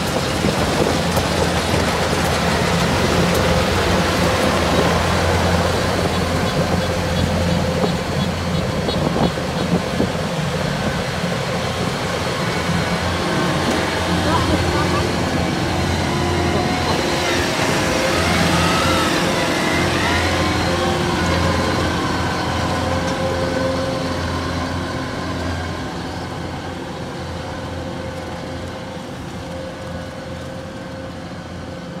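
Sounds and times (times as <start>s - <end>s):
combine harvester droning: 0.0s - 32.0s.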